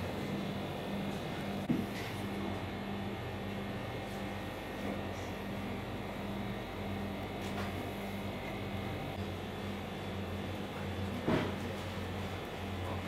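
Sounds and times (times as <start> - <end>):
refrigerated display cases humming: 0.0 - 13.0.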